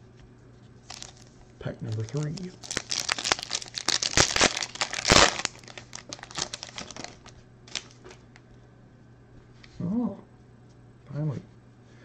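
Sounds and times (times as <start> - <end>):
foil wrapper crinkling and tearing: 0.8 - 8.2.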